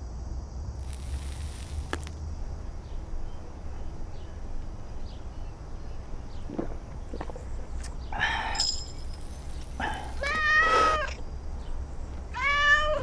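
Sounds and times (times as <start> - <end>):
steady low rumble: 0.0 - 10.2.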